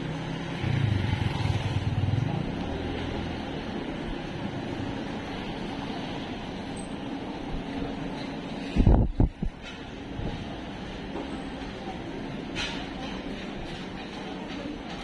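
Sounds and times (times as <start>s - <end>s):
motor scooter passing: 0.0s - 6.2s
car engines humming: 0.0s - 8.1s
street noise: 0.0s - 15.0s.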